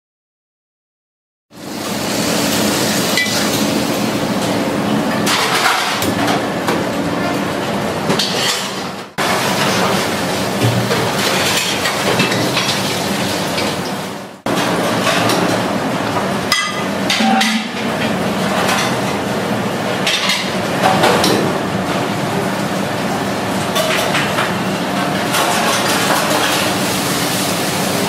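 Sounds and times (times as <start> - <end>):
kitchen noise with low hum: 1.6 - 28.0
metal utensils scraping a wok: 17.1 - 18.0.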